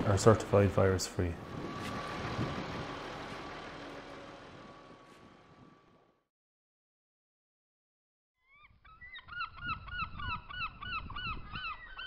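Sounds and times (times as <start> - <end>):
low rumble: 1.4 - 6.1.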